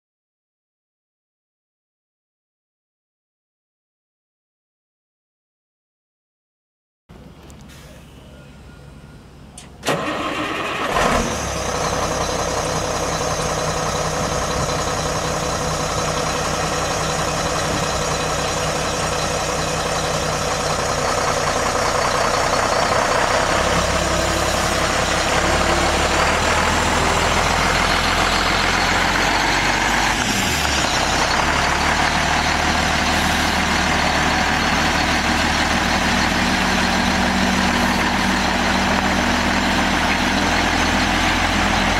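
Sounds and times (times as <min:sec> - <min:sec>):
diesel truck engine starting and idling: 0:07.1 - 0:41.9.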